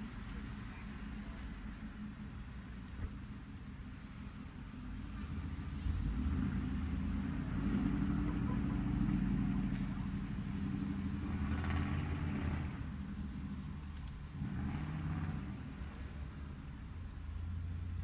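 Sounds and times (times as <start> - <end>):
car engine running low rumble: 0.0 - 18.0.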